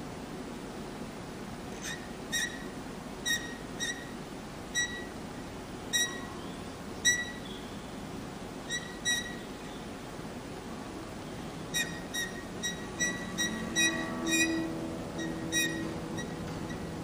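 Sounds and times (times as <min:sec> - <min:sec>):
bowed guitar squeaking notes: 0:01.8 - 0:05.2, 0:05.9 - 0:07.6, 0:08.6 - 0:09.6, 0:11.2 - 0:17.0.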